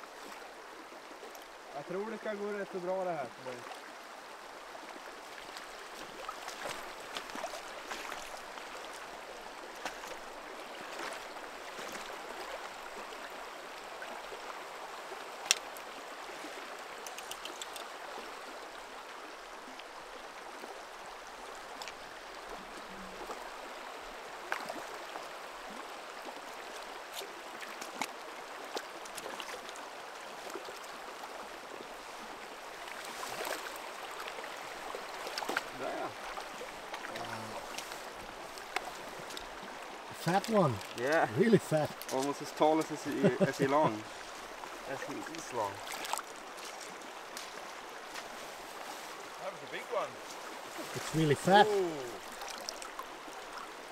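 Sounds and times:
river running over stones: 0.0 - 53.9
small splashes and clicks: 5.3 - 9.1, 9.7 - 13.2, 15.3 - 18.5, 21.4 - 23.6, 24.4 - 25.3, 26.3 - 31.0, 32.8 - 49.1, 50.2 - 53.8.

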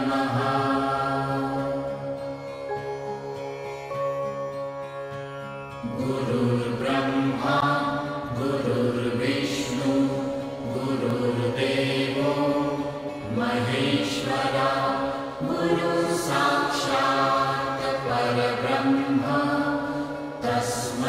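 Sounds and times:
chanted devotional singing: 0.0 - 3.8, 5.8 - 21.0
steady drone: 5.8 - 21.0.

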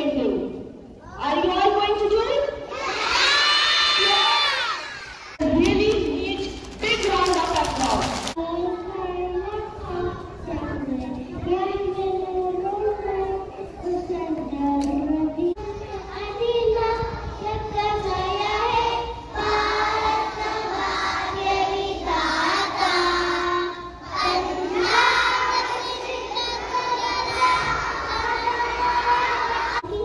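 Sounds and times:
girls singing into microphone: 15.0 - 29.8.

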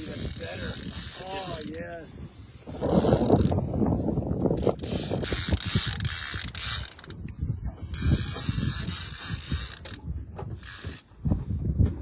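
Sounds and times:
fishing reel clicking: 0.0 - 1.8, 2.7 - 3.6, 4.6 - 11.1.

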